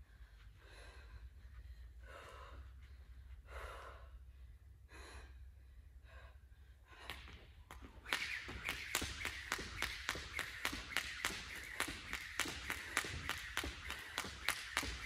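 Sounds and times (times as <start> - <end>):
heavy breathing: 0.0 - 7.6
jump rope slapping floor: 7.0 - 15.0.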